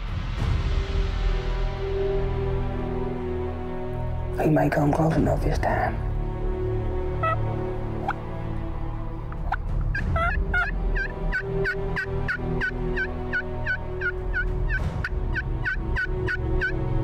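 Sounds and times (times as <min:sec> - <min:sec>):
turkey yelping: 0:07.2 - 0:07.4, 0:08.0 - 0:08.2, 0:09.3 - 0:16.8.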